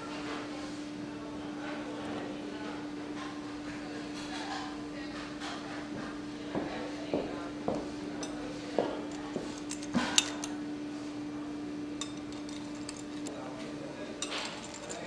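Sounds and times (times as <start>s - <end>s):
steady low hum: 7.2s - 15.0s
cup and spoon clinking: 9.1s - 10.6s, 12.0s - 13.3s, 14.2s - 15.0s.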